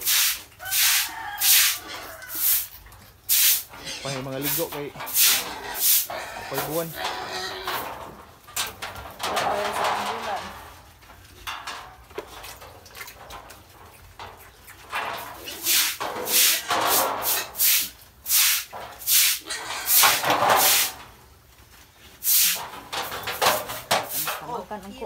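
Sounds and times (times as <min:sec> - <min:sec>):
piglets squealing and grunting: 0:00.2 - 0:08.2, 0:14.4 - 0:20.9.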